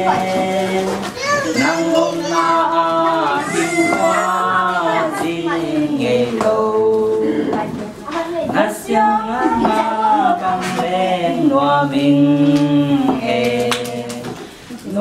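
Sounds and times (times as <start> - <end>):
man and woman singing duet: 0.0 - 15.0.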